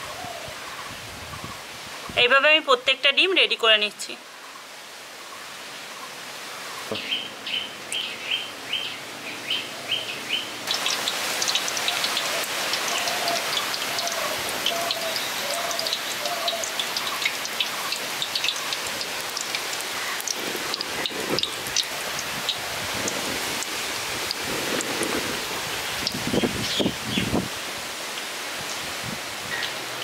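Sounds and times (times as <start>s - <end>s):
bird chirping: 6.8s - 11.0s
food frying in hot oil: 10.6s - 27.4s.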